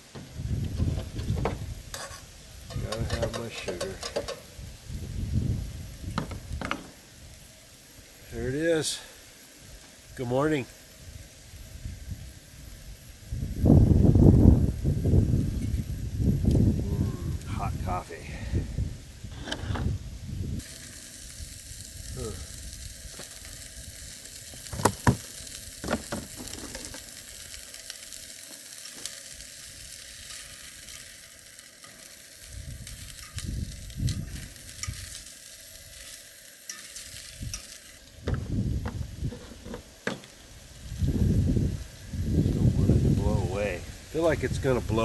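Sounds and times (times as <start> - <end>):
sausages sizzling in frying pan: 0.0 - 45.0
wind buffeting microphone: 0.2 - 7.4, 11.0 - 20.7, 32.4 - 35.2, 38.2 - 39.7, 40.5 - 45.0.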